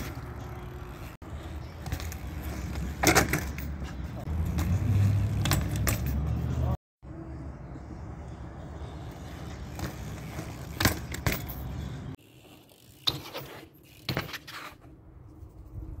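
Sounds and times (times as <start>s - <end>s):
bike clacks on concrete: 0.0s - 6.8s, 9.1s - 14.9s
bike knocks and rattles: 0.0s - 6.8s, 9.2s - 14.9s
bike rolling on pavement: 0.0s - 6.8s, 8.6s - 16.0s.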